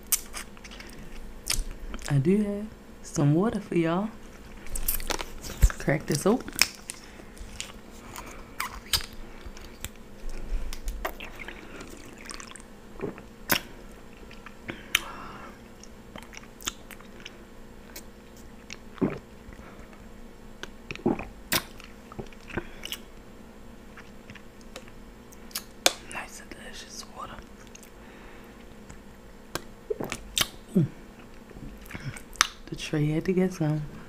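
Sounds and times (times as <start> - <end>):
drinking and swallowing: 9.4 - 13.6, 29.9 - 30.2.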